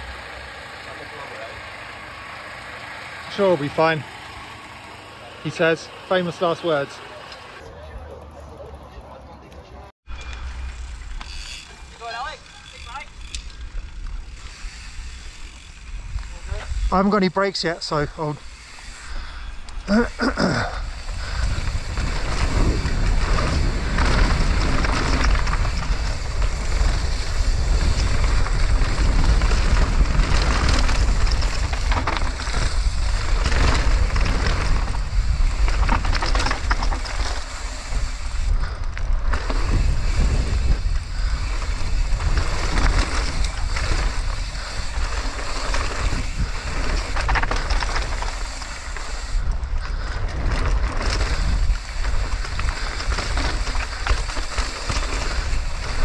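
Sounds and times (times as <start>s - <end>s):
rushing rumble: 10.1s - 56.0s
bike knocks and rattles: 18.9s - 56.0s
wind buffeting microphone: 20.7s - 36.8s, 37.5s - 48.4s, 49.1s - 56.0s.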